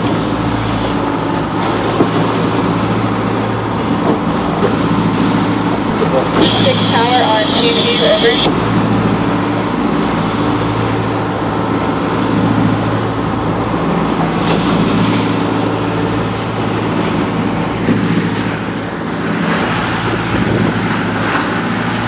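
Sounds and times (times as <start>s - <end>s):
boat engine humming: 0.0s - 22.0s
water splashing along hull: 0.0s - 22.0s.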